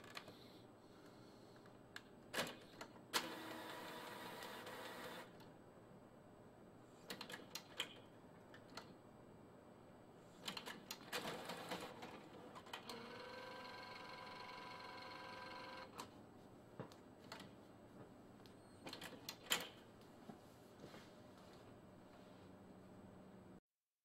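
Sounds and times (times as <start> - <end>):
printer motor whirring: 3.2 - 5.3, 11.2 - 16.0.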